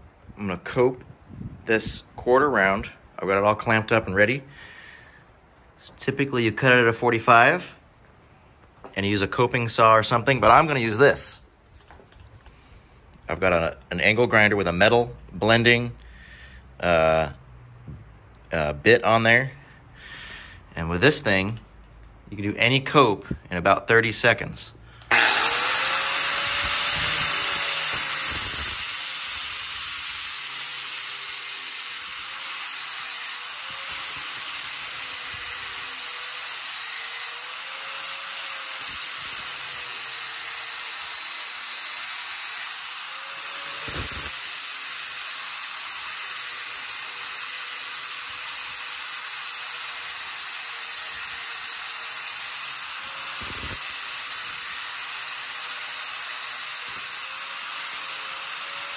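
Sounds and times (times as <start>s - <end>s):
angle grinder whining: 25.0s - 58.9s.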